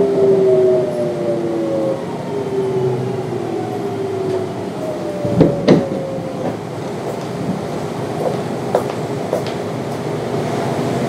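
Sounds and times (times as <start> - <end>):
train inverter whining: 0.0 - 11.0
wheels knocking on track: 5.2 - 9.6.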